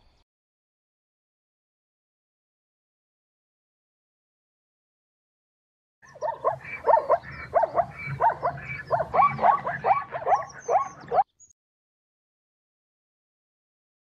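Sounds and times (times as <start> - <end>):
hyena calling: 6.1 - 11.3.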